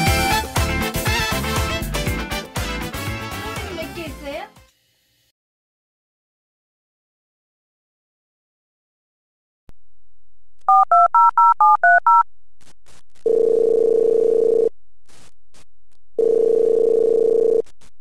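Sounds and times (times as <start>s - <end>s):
phone keypad beeps: 10.7s - 12.2s
phone ringback tone: 13.3s - 14.7s, 16.2s - 17.6s.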